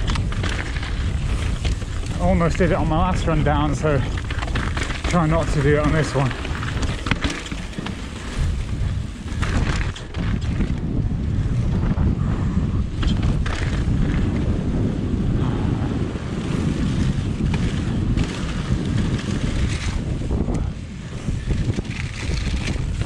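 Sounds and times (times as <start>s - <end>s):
bike rattling over wooden boardwalk: 0.0s - 12.1s, 12.9s - 15.2s, 16.3s - 23.0s
wind rush on microphone: 0.0s - 23.0s
sharp knocks from bike: 4.4s - 8.5s.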